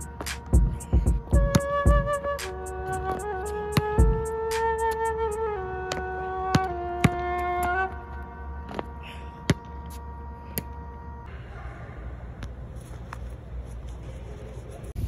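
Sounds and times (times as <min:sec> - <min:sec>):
flute-like melody: 0:00.0 - 0:11.3.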